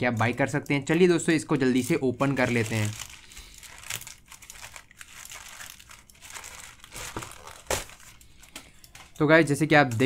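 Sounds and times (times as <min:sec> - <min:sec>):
plastic mailer crinkling: 0:00.9 - 0:09.2
scissors cutting plastic: 0:01.8 - 0:09.2.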